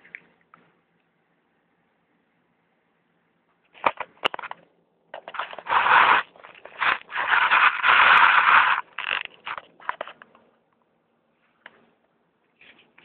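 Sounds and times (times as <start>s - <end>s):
crackling rustle against microphone: 3.6s - 10.4s.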